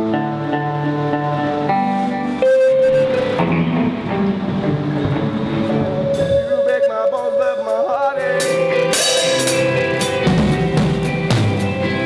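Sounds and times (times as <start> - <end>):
live band music: 0.0 - 12.0
cymbal strokes: 8.2 - 11.7.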